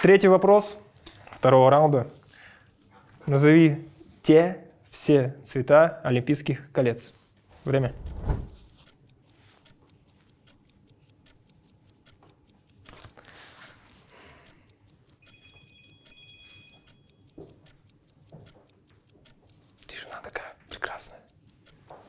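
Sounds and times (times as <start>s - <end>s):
clock ticking fast: 7.6s - 22.0s.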